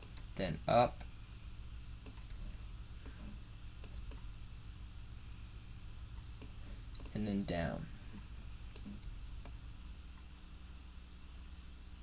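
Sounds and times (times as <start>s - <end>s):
steady low hum: 0.0s - 12.0s
mouse and keyboard clicks: 2.0s - 4.2s, 6.4s - 7.2s, 8.1s - 9.6s.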